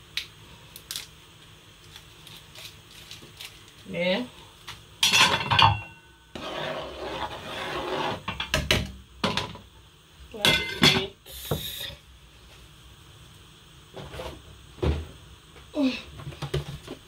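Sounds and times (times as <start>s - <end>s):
metal spoon scraping in a pot: 6.3s - 8.4s.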